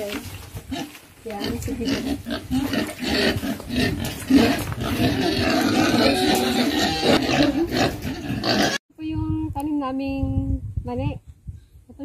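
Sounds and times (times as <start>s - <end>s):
pigs squealing and grunting: 0.7s - 8.8s.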